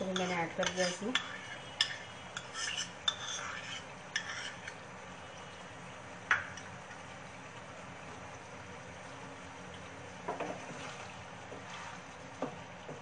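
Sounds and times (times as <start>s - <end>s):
wooden spatula scraping: 0.0s - 4.8s, 10.6s - 12.0s
faint sizzling in a pan: 0.0s - 13.0s.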